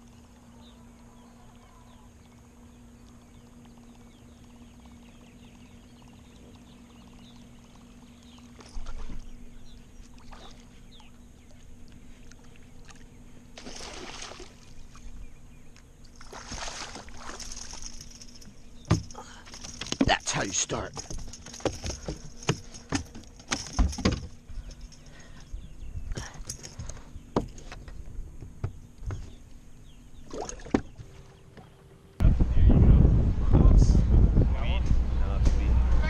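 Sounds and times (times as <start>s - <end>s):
steady low hum: 0.0s - 36.0s
fish splashing: 11.5s - 15.0s, 16.1s - 18.2s.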